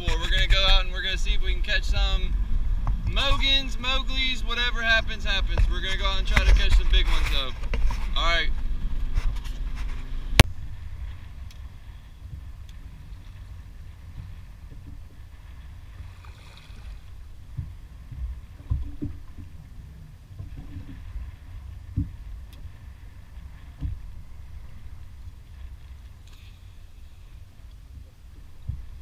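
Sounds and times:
dull low thumps: 0.0 - 16.2, 16.9 - 26.2, 27.8 - 29.0
water lapping against boat hull: 0.0 - 29.0
wind rumble: 0.0 - 29.0.

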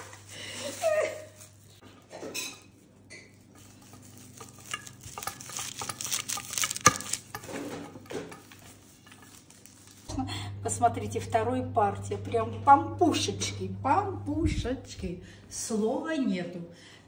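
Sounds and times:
rolling pin rolling dough: 3.4 - 10.0.

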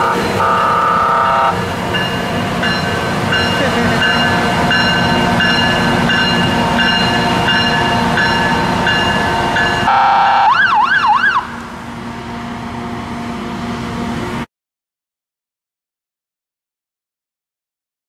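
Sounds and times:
pulsing warning siren: 0.0 - 1.7, 4.2 - 14.0.

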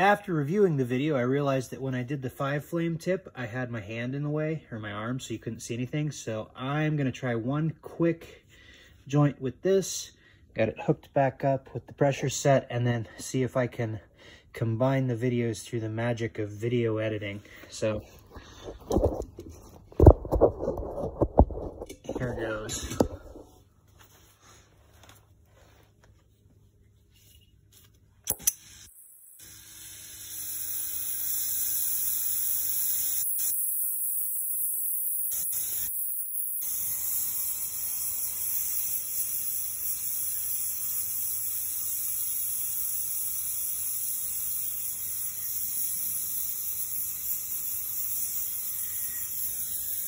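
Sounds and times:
torch lighting snaps: 28.2 - 29.0
gas torch hissing: 28.3 - 50.0.

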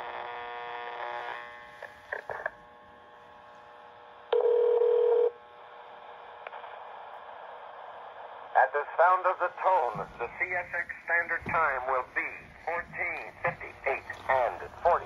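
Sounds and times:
buzzy phone tone: 4.3 - 5.4.

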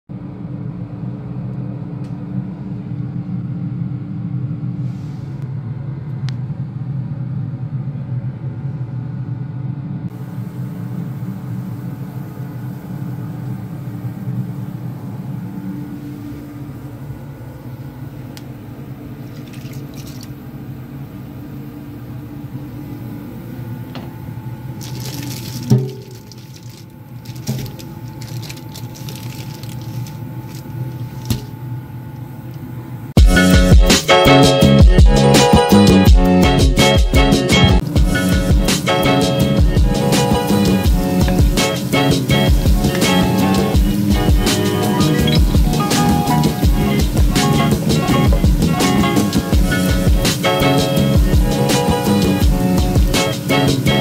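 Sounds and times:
steady low hum: 0.1 - 54.0
tap water splashing in sink: 24.8 - 28.4.

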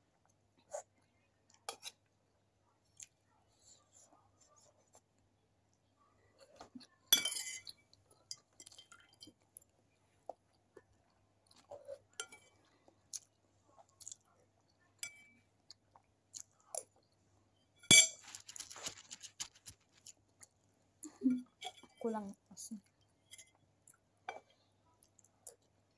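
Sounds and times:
person chewing food: 0.1 - 3.3, 7.7 - 15.0, 15.6 - 17.2, 18.2 - 20.7, 22.9 - 25.9
metal spoon clinking on plate: 7.1 - 9.1, 17.8 - 18.4.

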